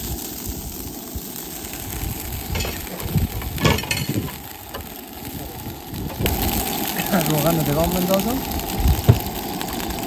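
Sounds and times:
oil sizzling in a frying pan: 0.0s - 10.0s
cookware clinking: 2.6s - 4.4s.

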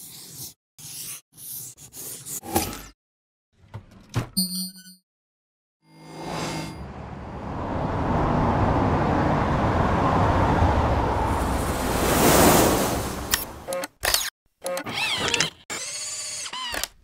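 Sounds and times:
traffic rumble: 6.8s - 13.6s.

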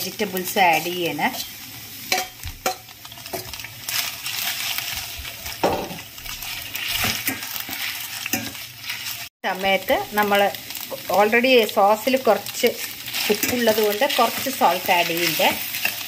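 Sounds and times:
noodles sizzling in a pan: 0.0s - 16.0s
metal spatula scraping a pan: 0.6s - 9.3s, 12.8s - 16.0s.

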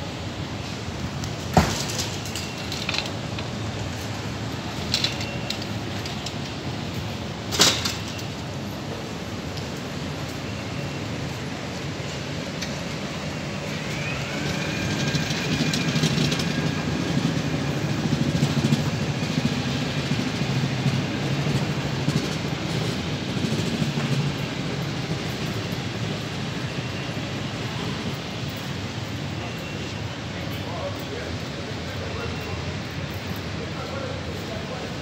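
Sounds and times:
vehicle engine rumbling: 0.0s - 35.0s.

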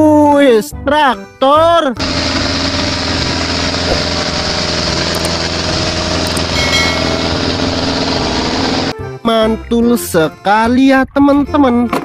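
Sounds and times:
tractor and harvester machinery drone: 2.0s - 9.0s.

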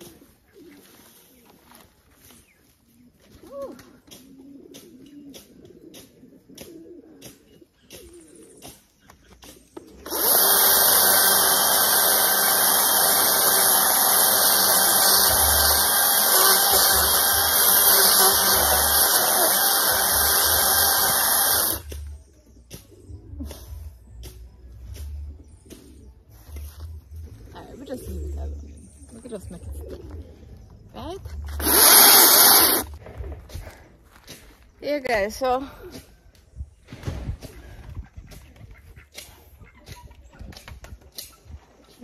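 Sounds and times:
electric chainsaw cutting log: 10.0s - 22.1s, 31.6s - 33.0s.

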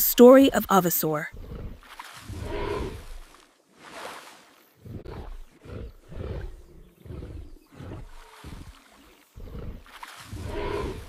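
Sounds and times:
dinosaur grunts and roars: 1.3s - 3.2s, 4.8s - 11.0s.

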